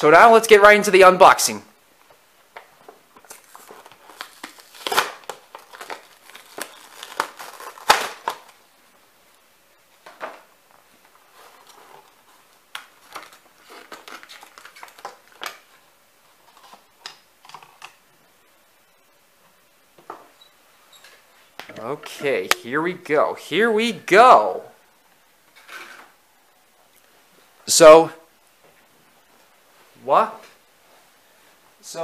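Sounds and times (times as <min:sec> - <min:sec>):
plastic packaging crinkling: 0:03.2 - 0:08.6, 0:11.3 - 0:15.8.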